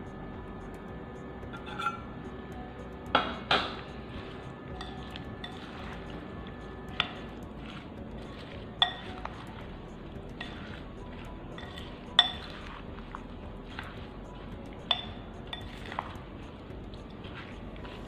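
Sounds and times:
spoon clinking against glass: 1.6s - 2.1s, 4.7s - 6.0s, 7.0s - 9.5s, 10.3s - 12.7s, 14.8s - 16.2s
spoon stirring pickle: 3.7s - 18.0s.

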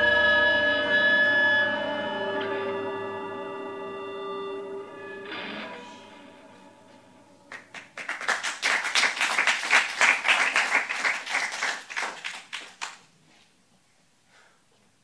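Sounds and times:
audience clapping: 7.5s - 13.1s.

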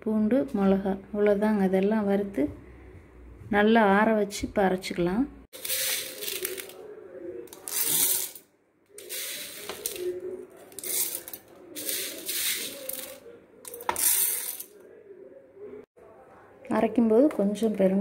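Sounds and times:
dry lentils rattling on steel: 5.6s - 6.7s, 9.0s - 10.0s, 10.7s - 14.6s.

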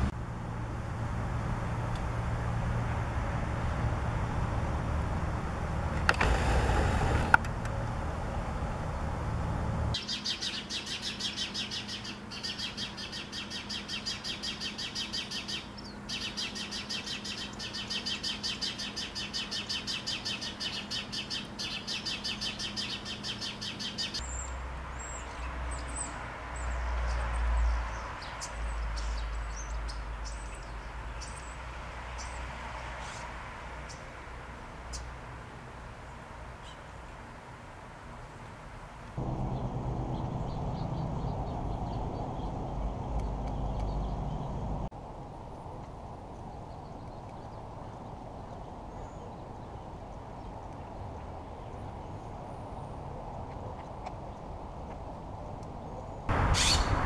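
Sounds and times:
birds chirping: 10.0s - 34.2s, 34.8s - 35.2s, 36.0s - 37.3s, 39.2s - 44.9s, 46.3s - 57.0s
low rumble: 39.2s - 44.9s.

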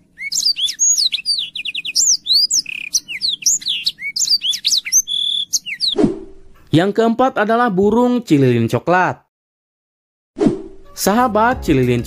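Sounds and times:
canary singing: 0.0s - 6.0s.

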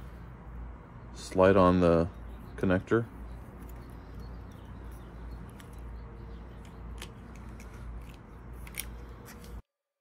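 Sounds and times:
small clicks and rubbing of hose: 6.6s - 9.6s.

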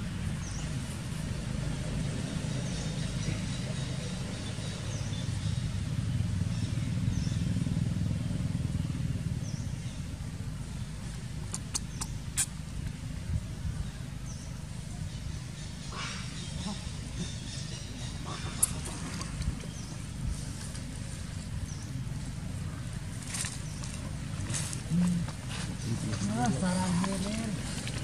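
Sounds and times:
engine rumbling: 0.0s - 28.0s
sharp clicks: 11.5s - 12.5s
small high chirp: 11.5s - 12.5s.

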